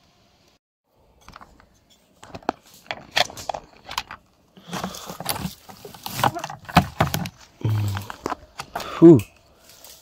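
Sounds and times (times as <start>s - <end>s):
dry leaves rustling and crackling: 4.6s - 10.0s.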